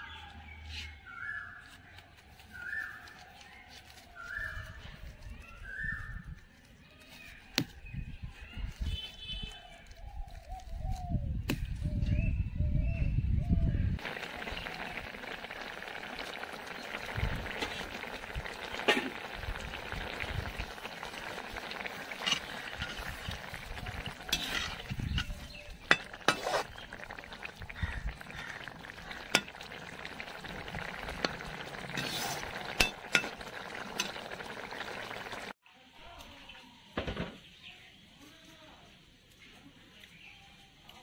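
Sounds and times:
curry bubbling and sizzling: 14.0s - 35.6s
metal spatula scraping wok: 23.9s - 26.9s, 31.9s - 33.4s.

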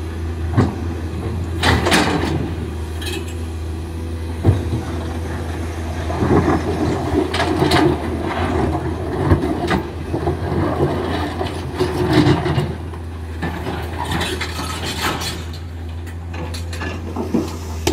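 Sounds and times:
excavator diesel engine running: 0.0s - 17.9s
metal knocks and clanks: 16.2s - 17.9s.

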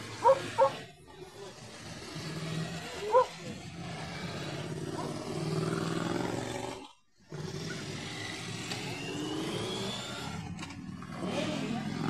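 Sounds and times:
motorcycle engine accelerating away: 0.0s - 12.0s
motorcycles riding past: 1.9s - 12.0s.

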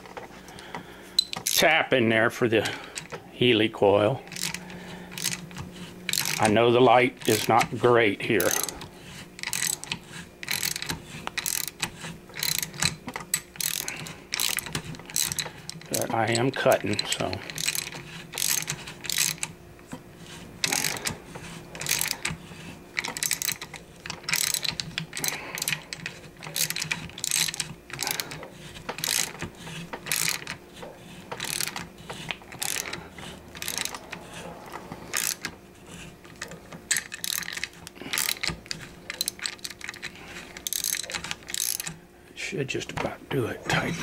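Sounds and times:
ratcheting tap handle clicking: 4.3s - 6.6s, 7.2s - 7.7s, 8.4s - 8.8s, 9.4s - 19.6s, 20.6s - 21.2s, 21.8s - 30.6s, 31.3s - 34.2s, 35.1s - 35.5s, 36.3s - 42.0s.

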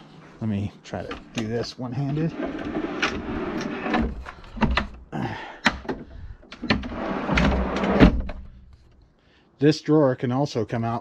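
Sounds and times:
drawer slides rolling: 2.1s - 4.8s, 6.5s - 8.5s
drawer slides clicking and knocking: 2.3s - 5.0s, 5.7s - 8.6s.

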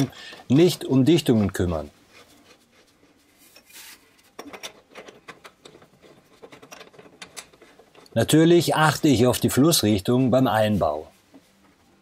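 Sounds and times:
metallic rubbing of pipe fittings: 2.1s - 8.8s.

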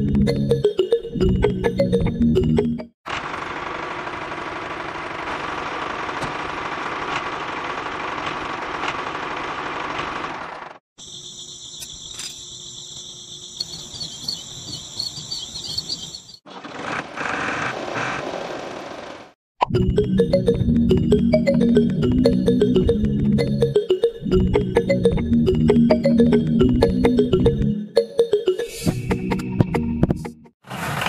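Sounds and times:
insects trilling: 11.0s - 16.4s.

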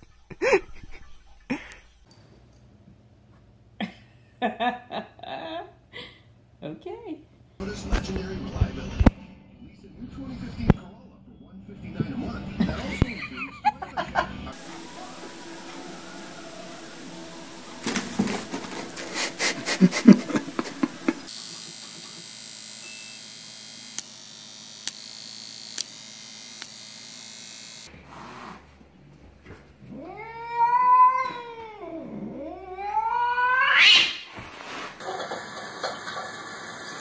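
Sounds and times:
cat yowling: 29.9s - 34.2s.

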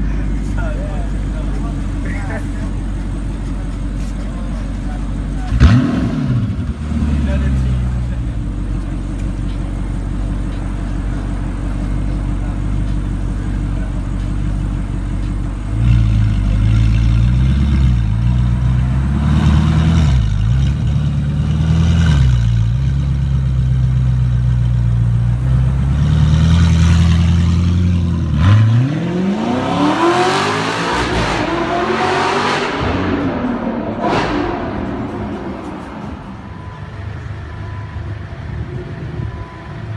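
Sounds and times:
car engine idling: 0.0s - 28.4s, 32.8s - 39.9s
car engine revving up: 5.3s - 8.2s, 15.7s - 23.4s, 25.3s - 37.0s.

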